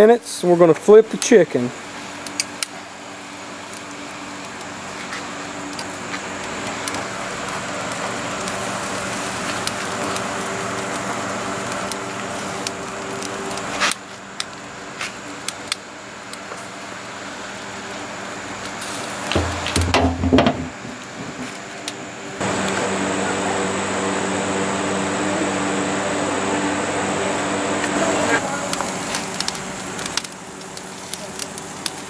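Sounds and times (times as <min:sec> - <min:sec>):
low hum: 0:19.0 - 0:31.2.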